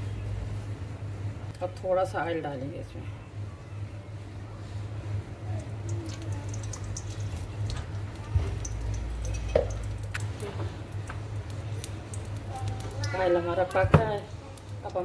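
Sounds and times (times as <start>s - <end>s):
oil crackling in a pan: 4.8s - 15.0s.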